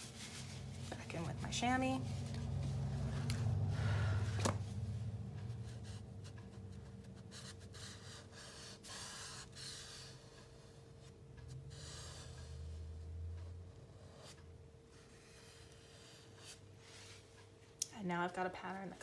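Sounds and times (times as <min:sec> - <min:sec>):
cloth rubbing charcoal on paper: 0:00.0 - 0:01.4.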